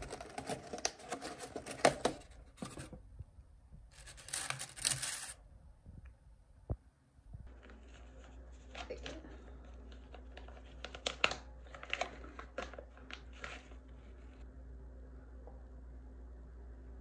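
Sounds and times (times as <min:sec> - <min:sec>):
plastic pouch crinkling and tearing: 0:04.0 - 0:05.4, 0:09.8 - 0:13.8.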